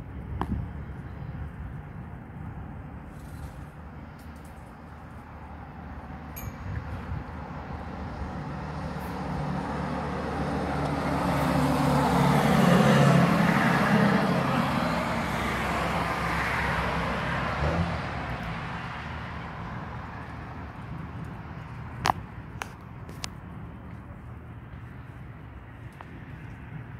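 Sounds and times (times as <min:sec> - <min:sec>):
vehicle passing by: 0:03.1 - 0:22.0.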